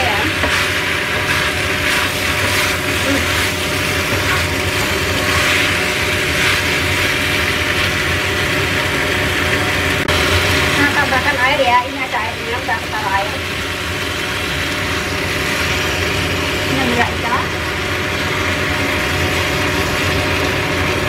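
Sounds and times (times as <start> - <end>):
food sizzling: 0.0 - 21.0
steady hum: 0.0 - 21.0
spatula scraping a metal wok: 0.4 - 8.0.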